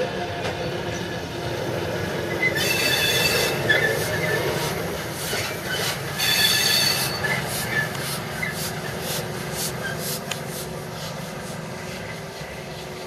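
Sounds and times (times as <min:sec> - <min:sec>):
steam locomotive rumbling: 0:00.0 - 0:13.0
train wheels squealing: 0:02.2 - 0:09.0, 0:09.7 - 0:10.2.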